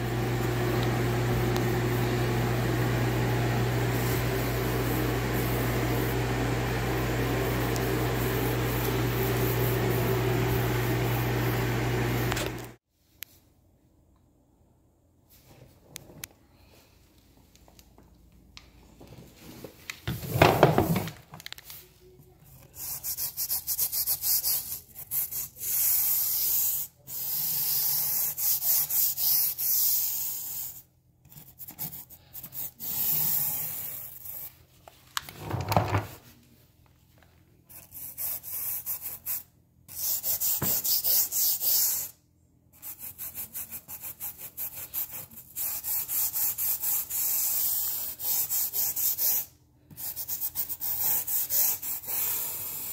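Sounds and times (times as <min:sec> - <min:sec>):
bristle brush scrubbing grout: 0:01.8 - 0:11.6.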